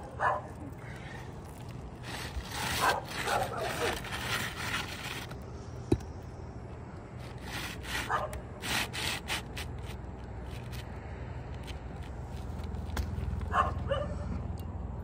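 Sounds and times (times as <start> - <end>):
shingle scraping on shingles: 1.0 - 6.0, 7.2 - 10.9.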